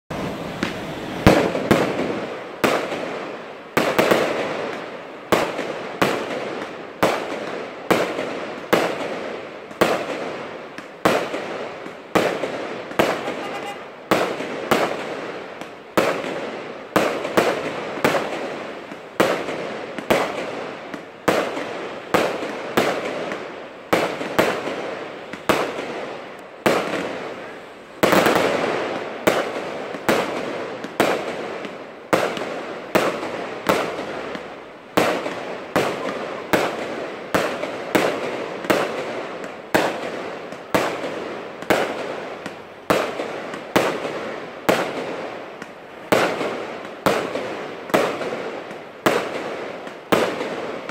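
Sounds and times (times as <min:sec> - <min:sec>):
fireworks bangs: 0:00.1 - 0:50.9.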